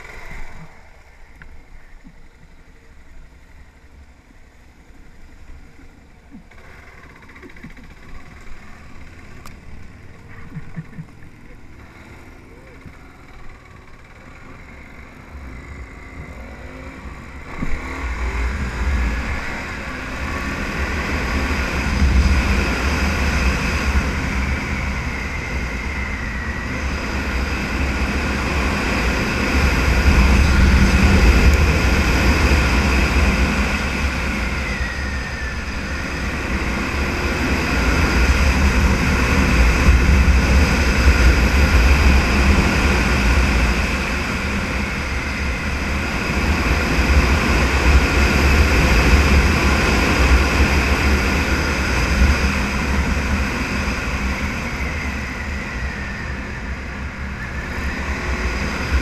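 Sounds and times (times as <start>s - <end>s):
motorcycle engine running: 0.0s - 59.0s
wind rushing over microphone: 16.2s - 59.0s.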